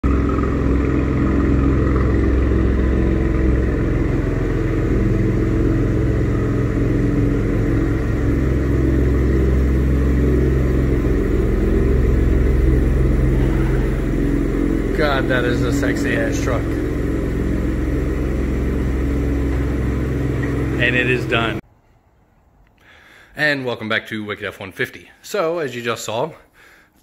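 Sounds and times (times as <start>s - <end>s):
pickup engine idling: 0.0s - 21.6s.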